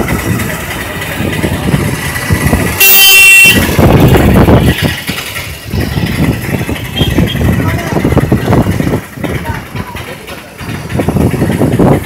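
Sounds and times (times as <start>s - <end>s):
road noise of moving vehicle: 0.0s - 12.0s
vehicle horn blast: 2.8s - 3.8s, 6.9s - 7.5s.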